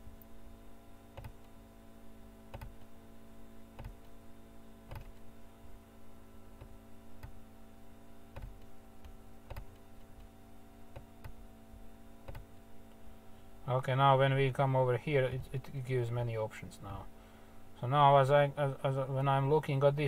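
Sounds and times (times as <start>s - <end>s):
electrical hum: 0.0s - 20.0s
computer mouse clicking: 1.1s - 1.6s, 2.5s - 2.9s, 3.8s - 4.2s, 4.9s - 5.2s, 8.3s - 10.3s, 12.2s - 12.5s.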